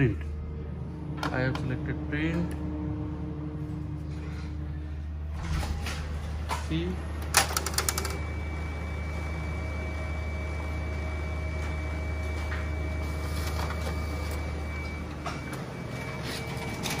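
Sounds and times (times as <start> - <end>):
laser copier humming: 0.0 - 17.0
copier clicks: 7.2 - 8.2.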